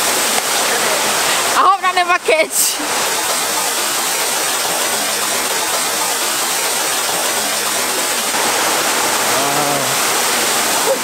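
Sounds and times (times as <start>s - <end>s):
waterfall rushing: 0.0s - 11.0s
person's drawn-out voice: 9.3s - 10.0s.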